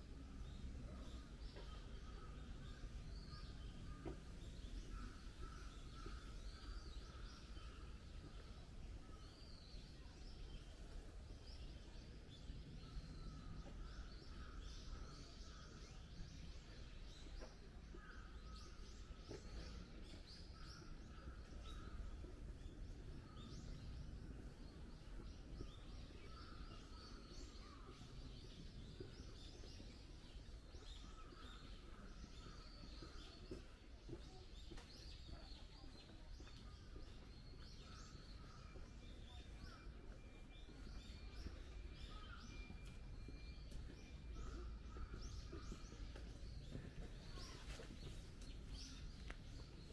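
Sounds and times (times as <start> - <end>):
birds chirping: 0.1 - 49.9.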